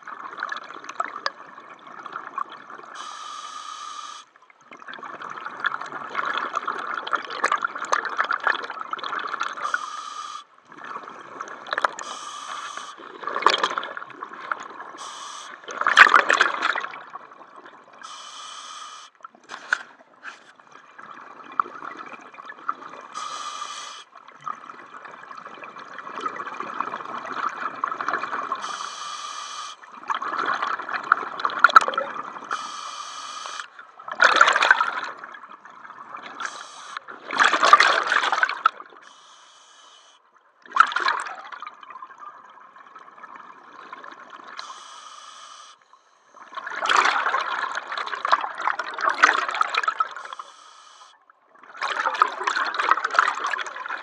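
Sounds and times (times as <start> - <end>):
diver breathing through regulator: 3.0 - 4.3, 9.6 - 10.5, 12.0 - 13.1, 15.0 - 15.6, 18.0 - 20.6, 23.1 - 24.1, 28.6 - 29.9, 32.5 - 33.8, 36.4 - 37.1, 39.0 - 40.2, 44.6 - 46.3, 50.2 - 51.2
exhaled bubbles rushing: 13.0 - 15.0, 34.0 - 38.9.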